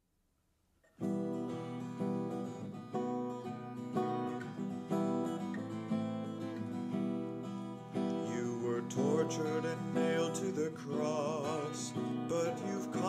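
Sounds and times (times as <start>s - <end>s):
strummed guitar chords: 1.0s - 13.0s.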